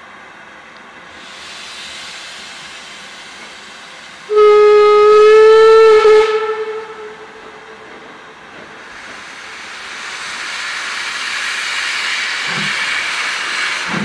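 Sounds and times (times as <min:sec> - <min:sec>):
steam locomotive hissing: 0:01.0 - 0:14.0
steam whistle blast: 0:04.3 - 0:07.9.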